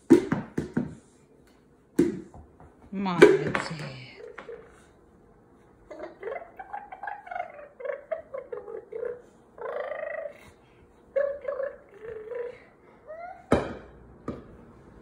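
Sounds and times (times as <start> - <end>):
toddler babbling: 5.9 - 10.6, 11.2 - 13.5.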